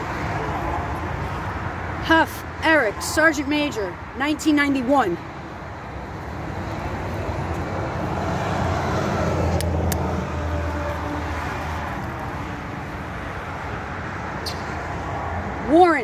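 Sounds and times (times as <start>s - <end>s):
car driving past: 7.3s - 12.6s.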